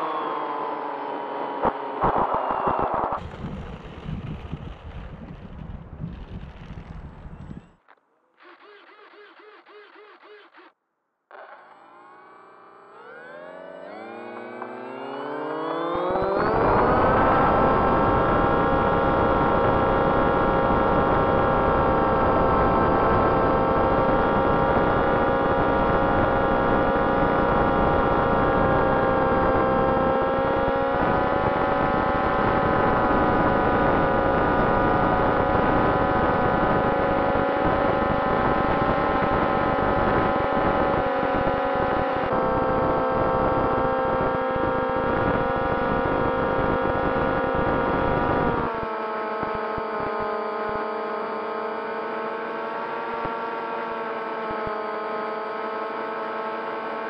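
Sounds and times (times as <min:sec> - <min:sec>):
rush of air: 0:02.0 - 0:06.9
electric motors whining: 0:11.3 - 0:24.5.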